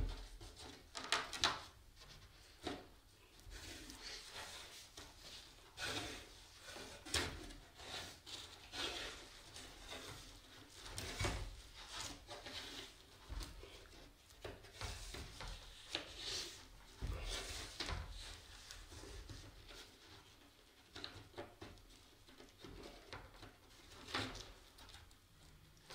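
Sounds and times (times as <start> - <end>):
cord rubbing on wood: 0.0 - 25.5.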